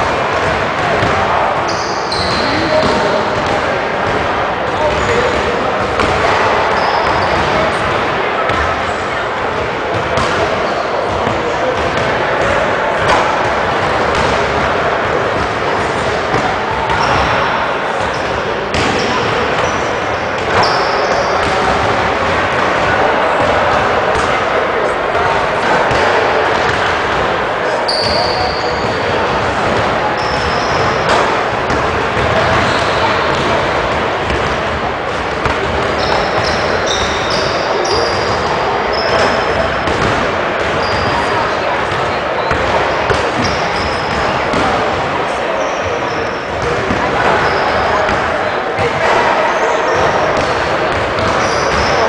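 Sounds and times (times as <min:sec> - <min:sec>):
gym echo noise: 0:00.0 - 0:52.0
basketballs bouncing on wood floor: 0:00.4 - 0:07.6, 0:27.9 - 0:41.2, 0:41.8 - 0:45.0, 0:49.9 - 0:52.0.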